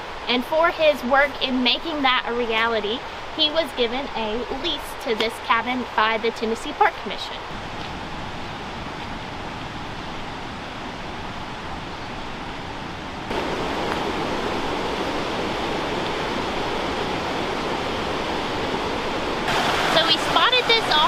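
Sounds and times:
creek rushing over rocks: 0:13.3 - 0:21.0.

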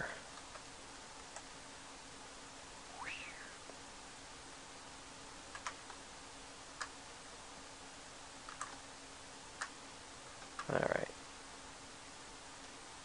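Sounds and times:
faint hiss: 0:00.0 - 0:13.0
low hum: 0:00.0 - 0:13.0
computer clicks: 0:05.5 - 0:06.0, 0:08.4 - 0:08.8.

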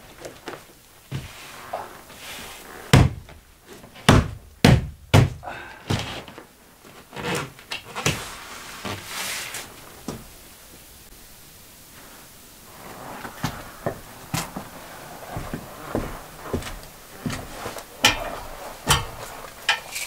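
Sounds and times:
hollow thuds on wooden board: 0:04.1 - 0:05.4.

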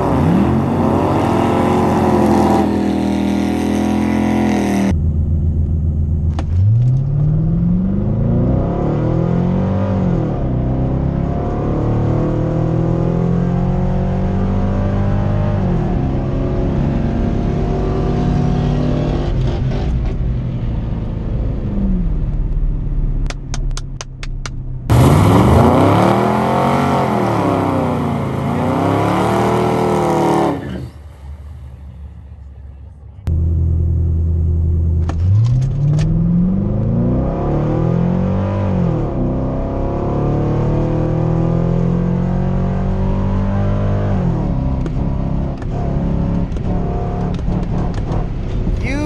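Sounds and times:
car engine revving during burnout: 0:00.0 - 0:04.9, 0:06.6 - 0:20.2, 0:24.9 - 0:31.0, 0:35.0 - 0:48.7
car engine accelerating: 0:00.0 - 0:49.0.

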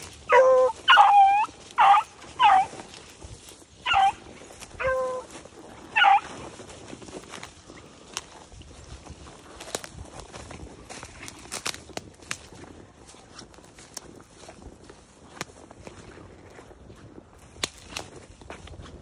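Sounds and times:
beagles baying: 0:00.0 - 0:03.0, 0:03.8 - 0:06.6.

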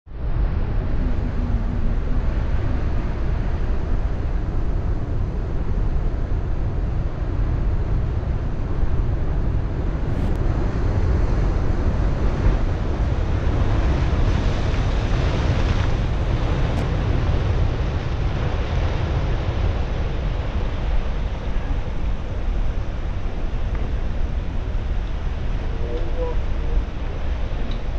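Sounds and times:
wind rushing over microphone: 0:00.1 - 0:27.9
surf breaking and washing: 0:00.3 - 0:27.9.

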